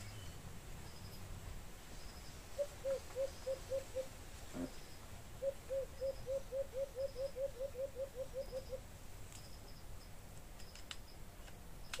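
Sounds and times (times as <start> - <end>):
bird hooting: 2.6 - 4.8, 5.4 - 8.8.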